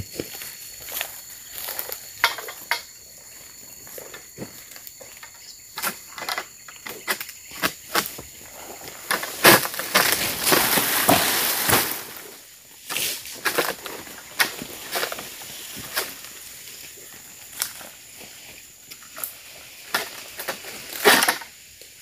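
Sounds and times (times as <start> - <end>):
sickle knocking on palm stalks: 9.1 - 12.2
palm leaves crashing down: 9.1 - 16.4.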